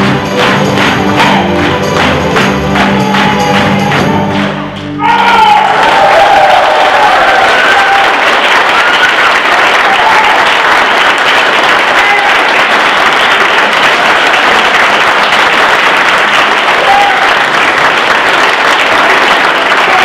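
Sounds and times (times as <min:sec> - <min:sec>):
large audience clapping: 0:00.0 - 0:20.0.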